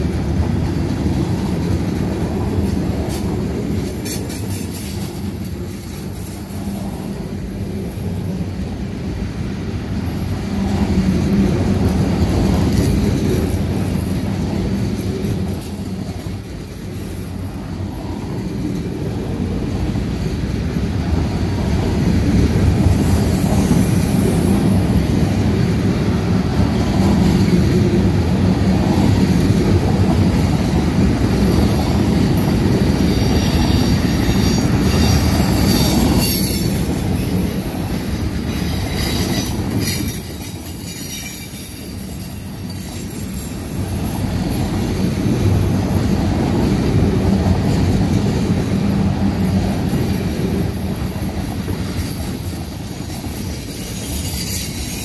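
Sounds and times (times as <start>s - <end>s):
steel wheels rumbling on rail: 0.0s - 55.0s
high wheel squeal: 32.8s - 37.7s, 38.5s - 44.6s.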